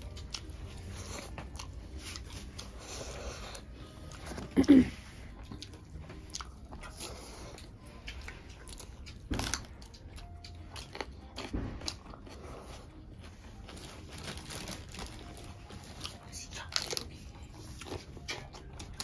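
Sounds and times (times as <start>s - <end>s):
chewing: 0.0s - 19.0s
crunching raw chillies: 5.2s - 19.0s.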